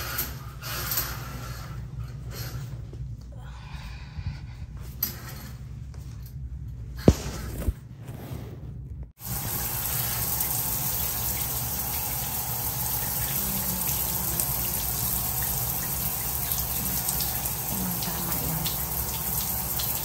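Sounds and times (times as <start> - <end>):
shower water spraying: 9.2 - 20.0.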